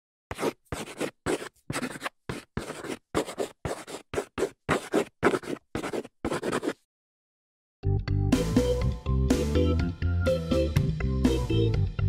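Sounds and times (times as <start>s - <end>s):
chalk scratching on a blackboard: 0.3s - 6.8s.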